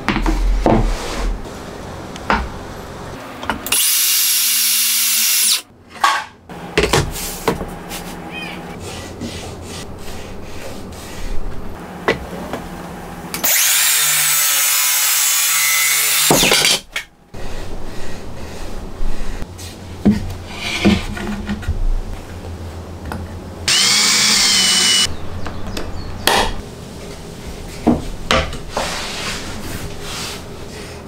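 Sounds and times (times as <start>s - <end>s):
circular saw cutting wood: 3.7s - 5.7s, 13.4s - 16.5s, 23.7s - 25.1s.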